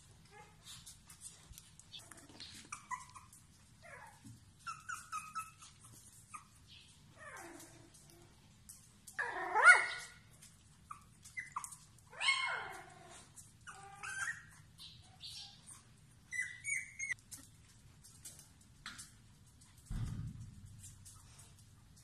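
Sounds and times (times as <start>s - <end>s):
puppies whining and yelping: 0.2s - 8.4s, 9.1s - 17.2s.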